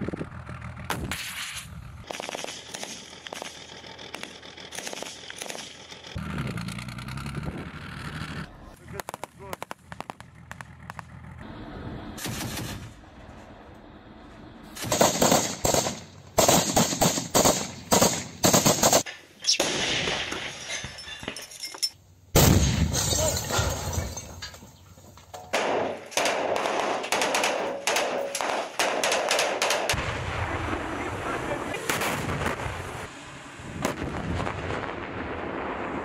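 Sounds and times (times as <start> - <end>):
rifle shots: 0.9 - 5.9, 12.2 - 13.0, 14.8 - 20.2, 25.5 - 30.1.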